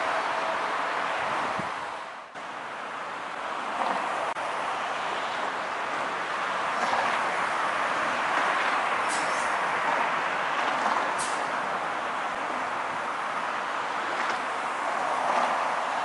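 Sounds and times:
train rushing: 3.5s - 16.0s.

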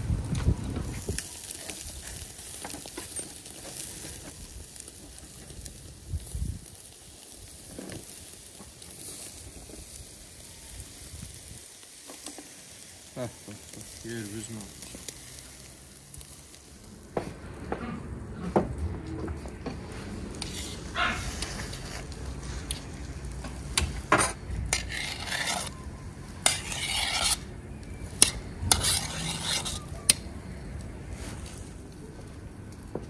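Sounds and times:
scraping or rustling: 17.6s - 25.8s, 26.4s - 27.4s, 28.2s - 30.0s, 31.0s - 31.8s.

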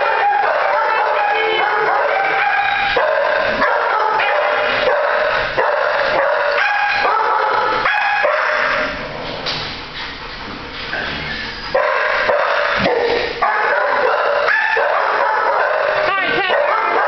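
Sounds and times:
dogs barking and yelping: 0.0s - 17.0s.

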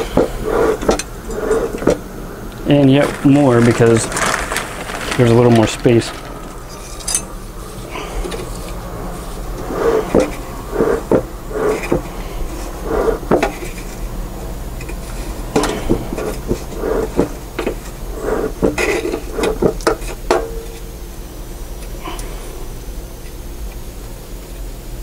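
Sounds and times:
hay rustling: 2.7s - 7.8s.

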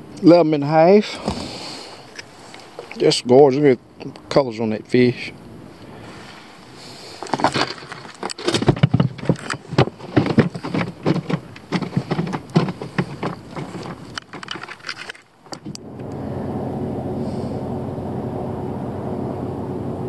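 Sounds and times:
knocks and clatter on boat deck: 7.3s - 15.8s
electric trolling motor humming: 15.5s - 20.0s.

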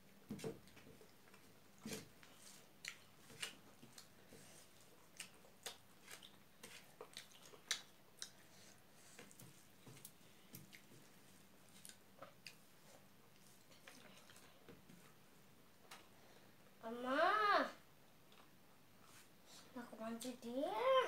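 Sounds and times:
chewing and wet mouth clicks: 2.8s - 4.1s, 5.0s - 8.4s, 11.8s - 12.6s.

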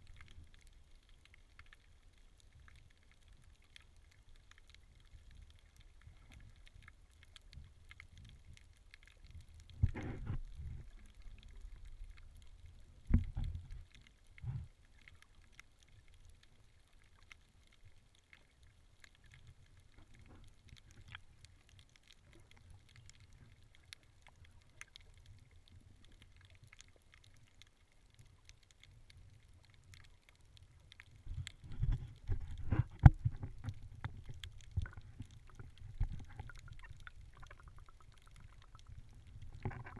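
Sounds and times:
underwater rumble of moving water: 0.0s - 39.9s
water splashing: 28.1s - 39.9s.

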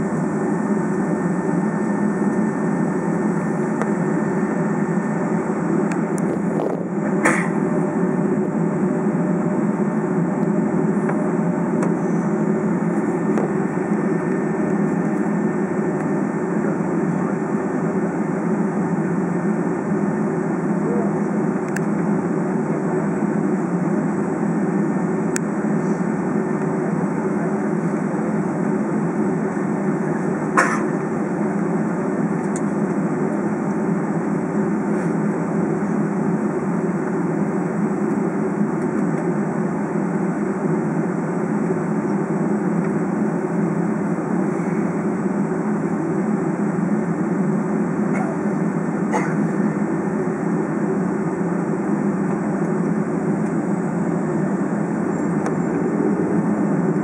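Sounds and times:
airliner cabin engine rumble: 0.0s - 57.0s.

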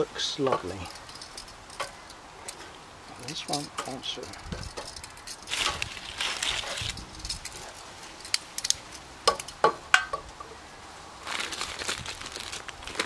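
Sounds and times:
metal clinks at grill: 0.4s - 2.6s
plastic package crinkling: 5.0s - 7.5s, 11.2s - 13.0s.

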